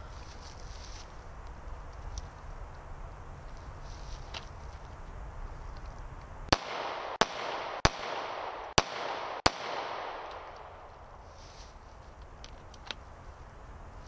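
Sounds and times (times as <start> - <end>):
pistol shots echoing: 6.5 - 11.0.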